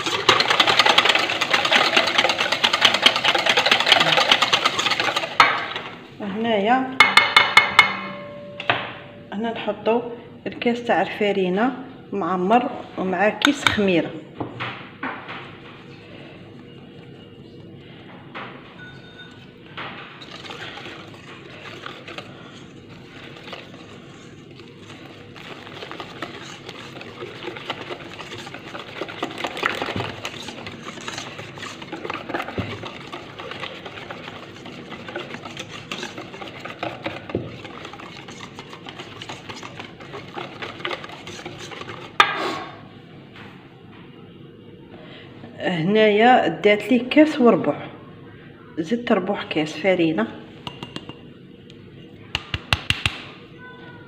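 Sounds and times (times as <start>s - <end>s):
whisk beating batter in metal bowl: 0.0s - 6.1s, 7.0s - 8.4s, 18.8s - 42.8s.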